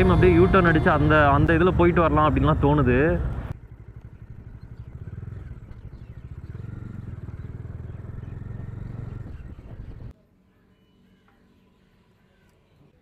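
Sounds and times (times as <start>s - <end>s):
motorcycle engine running: 0.0s - 10.1s.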